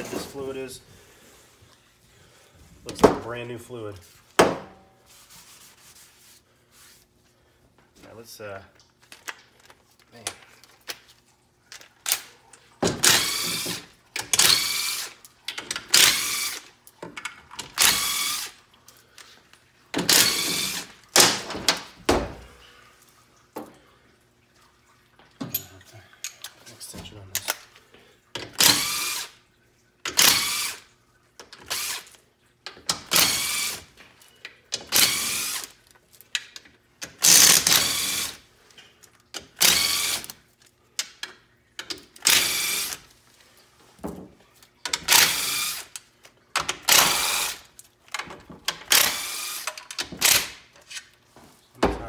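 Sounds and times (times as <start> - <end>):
cordless drill spinning bolts: 13.0 - 16.7, 17.6 - 18.6, 20.0 - 20.9, 28.5 - 29.3, 30.1 - 30.8, 31.6 - 32.1, 33.0 - 33.9, 34.8 - 35.7, 37.1 - 38.4, 39.5 - 40.3, 42.2 - 43.0, 44.9 - 45.9, 46.7 - 47.7, 48.8 - 50.5.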